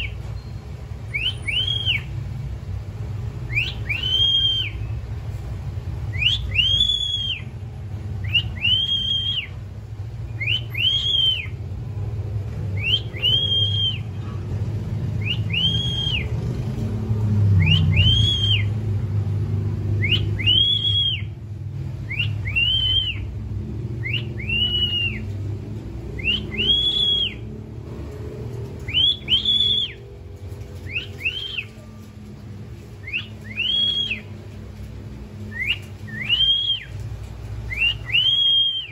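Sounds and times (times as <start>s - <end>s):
cockatiel whistling: 1.1s - 2.1s, 3.5s - 4.9s, 6.1s - 7.5s, 8.2s - 9.6s, 10.3s - 11.6s, 12.8s - 14.1s, 15.2s - 16.3s, 17.6s - 18.7s, 20.0s - 21.3s, 22.1s - 23.3s, 24.0s - 25.3s, 26.2s - 27.5s, 28.8s - 30.0s, 30.8s - 31.9s, 33.0s - 34.3s, 35.5s - 37.0s, 37.7s - 38.9s.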